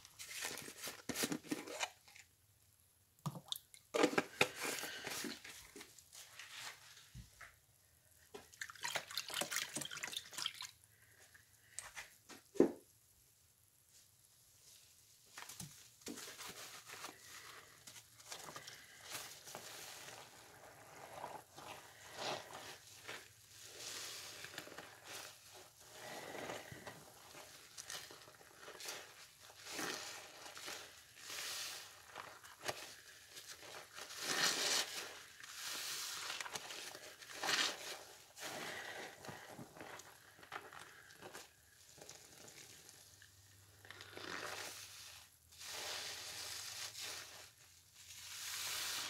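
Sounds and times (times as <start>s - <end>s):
sponges squeezed with wet squishing: 3.2s - 7.6s, 8.2s - 12.2s, 15.4s - 49.0s.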